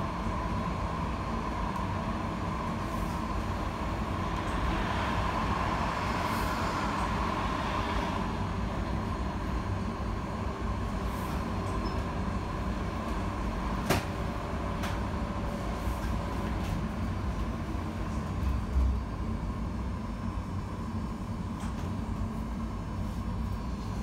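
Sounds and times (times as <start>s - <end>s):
tram wheels rumbling on rails: 0.0s - 19.2s.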